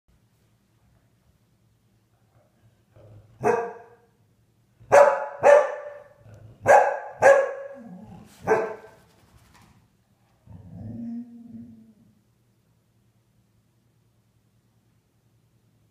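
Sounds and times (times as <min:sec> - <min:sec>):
dog barking: 0:03.4 - 0:04.1, 0:04.8 - 0:09.0
low drawn-out dog howl: 0:10.6 - 0:12.2.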